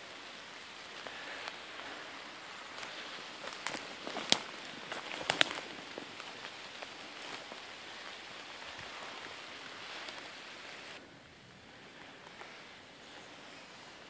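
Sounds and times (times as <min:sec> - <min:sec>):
twigs cracking: 0:00.0 - 0:11.0
steady hiss: 0:00.0 - 0:14.0
footsteps crunching through dry straw: 0:01.1 - 0:11.0.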